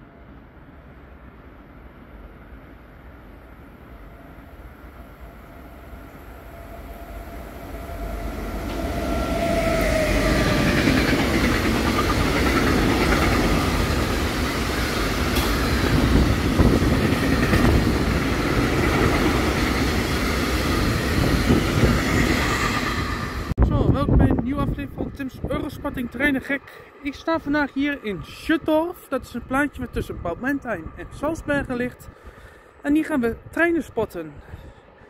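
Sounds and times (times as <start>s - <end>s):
faint locomotive whine: 0.0s - 35.0s
train wheels rumbling on rails: 5.8s - 28.5s.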